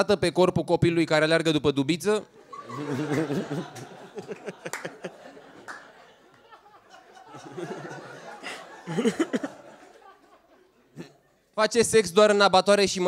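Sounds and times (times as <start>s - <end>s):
audience laughing: 2.4s - 11.3s.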